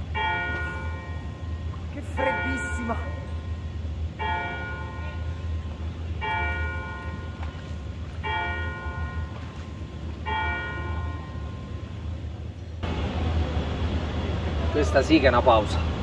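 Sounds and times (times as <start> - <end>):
church bell tolling: 0.0 - 12.0.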